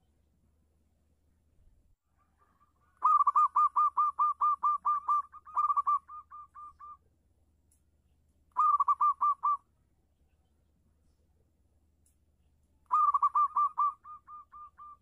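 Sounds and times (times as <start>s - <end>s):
dove cooing: 2.4s - 7.0s, 8.6s - 9.6s, 12.9s - 15.0s.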